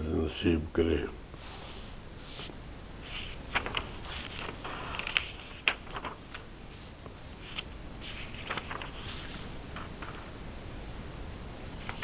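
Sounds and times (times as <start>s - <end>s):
faint steady hiss: 0.0s - 12.0s
soft clicks and rustles: 1.3s - 10.4s, 11.6s - 12.0s.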